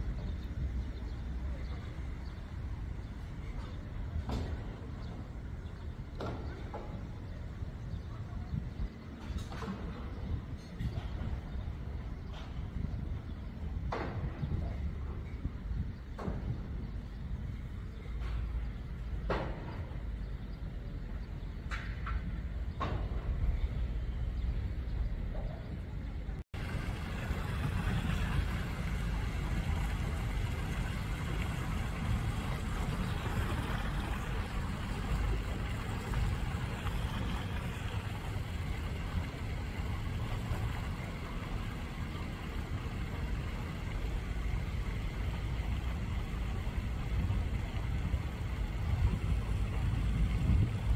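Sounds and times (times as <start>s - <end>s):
wind rumbling on microphone: 0.0s - 50.9s
water washing: 26.6s - 50.9s.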